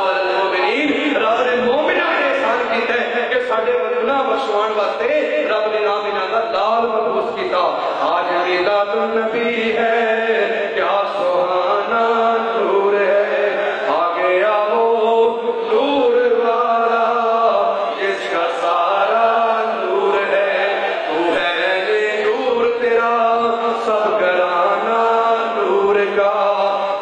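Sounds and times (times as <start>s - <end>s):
men chanting together: 7.7s - 27.0s.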